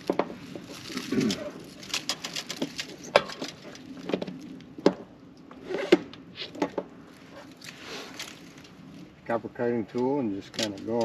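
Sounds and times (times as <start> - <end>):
dry leaves rustling: 0.0 - 4.6, 7.0 - 9.2.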